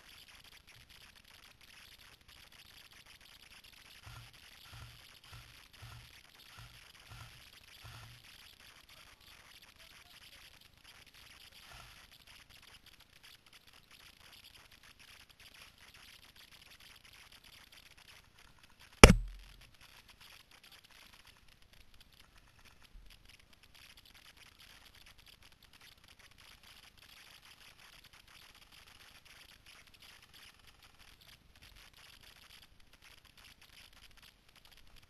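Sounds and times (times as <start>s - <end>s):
faint outdoor hiss: 0.0s - 35.0s
sharp loud knock: 19.0s - 19.5s.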